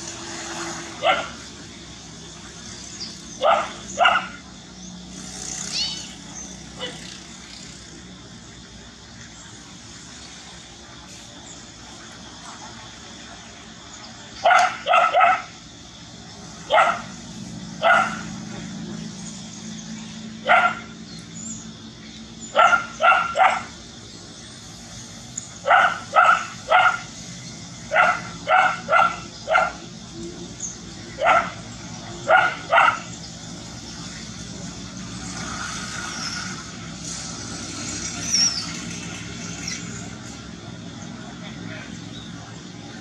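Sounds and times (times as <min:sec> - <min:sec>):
dog barking: 0:01.0 - 0:01.4, 0:03.4 - 0:04.4, 0:14.4 - 0:15.6, 0:16.7 - 0:17.2, 0:17.8 - 0:18.3, 0:20.4 - 0:21.0, 0:22.5 - 0:23.8, 0:25.6 - 0:27.1, 0:27.9 - 0:29.9, 0:31.2 - 0:31.6, 0:32.2 - 0:33.1.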